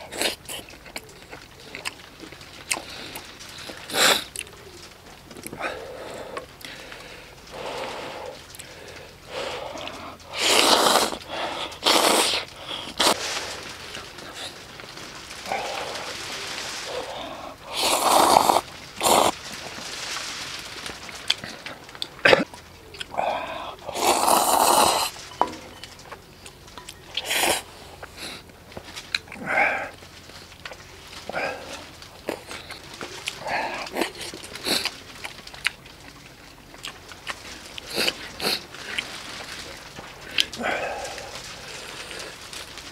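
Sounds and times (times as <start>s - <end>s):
mouth noises: 0.0s - 19.4s, 21.4s - 25.8s
soft breathy sounds: 2.7s - 22.2s, 22.9s - 25.6s, 37.8s - 42.9s
person slurping noodles: 9.3s - 13.5s, 16.8s - 19.4s, 23.1s - 25.1s, 27.2s - 27.7s.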